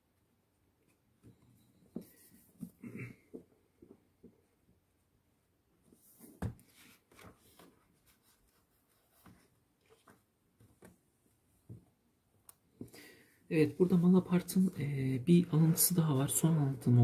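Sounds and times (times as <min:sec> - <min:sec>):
book pages turning: 0:06.0 - 0:11.0.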